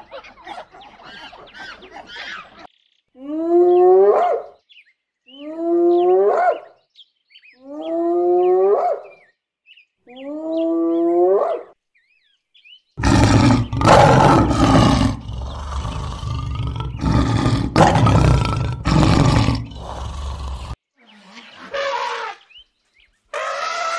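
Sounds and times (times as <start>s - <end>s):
hyena whooping: 13.0s - 20.8s
lion roaring and growling: 13.0s - 20.8s.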